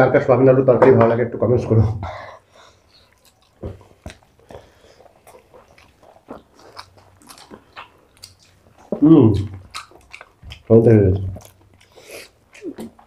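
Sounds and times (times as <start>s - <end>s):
chewing and mouth smacks: 2.9s - 13.0s.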